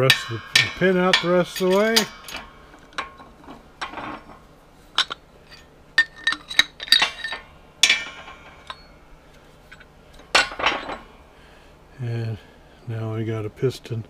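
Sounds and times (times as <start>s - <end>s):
metal parts clinking: 0.0s - 11.3s.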